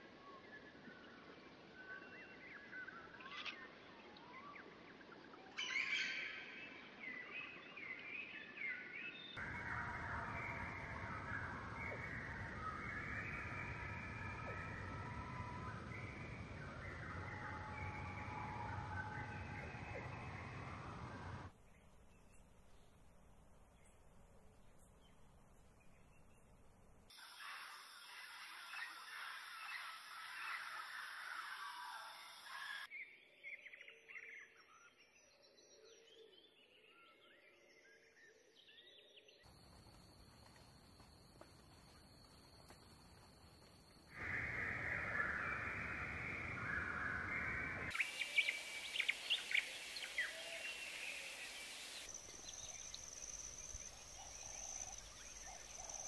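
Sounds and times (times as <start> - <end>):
songbirds chirping: 0.1 - 56.0
many birds calling: 9.4 - 21.5, 44.1 - 53.1
low background rumble: 9.4 - 22.2.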